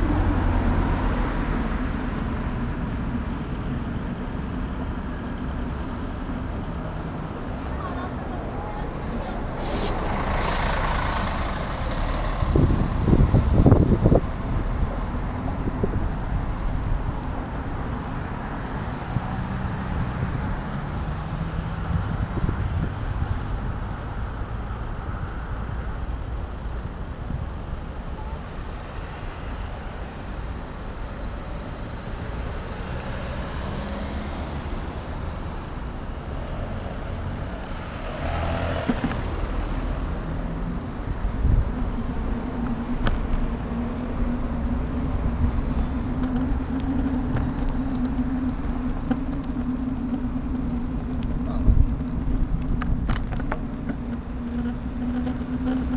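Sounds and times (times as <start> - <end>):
car and vehicle engines: 0.0 - 55.9
low traffic rumble: 0.0 - 55.9
vehicle passing loudly: 7.6 - 16.0, 36.5 - 55.9
tyre noise: 37.6 - 55.9.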